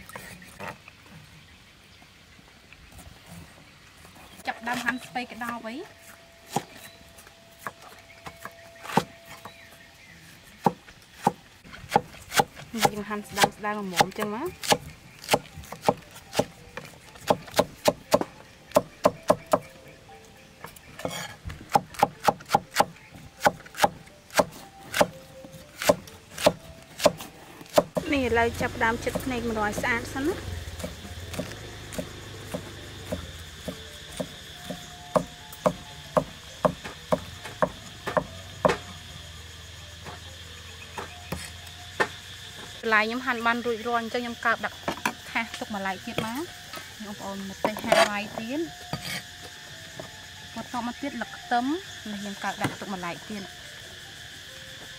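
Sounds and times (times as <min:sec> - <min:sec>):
cleaver chopping on wooden block: 0:10.6 - 0:16.5, 0:17.2 - 0:19.7, 0:21.0 - 0:25.2, 0:25.8 - 0:28.1, 0:30.8 - 0:38.9.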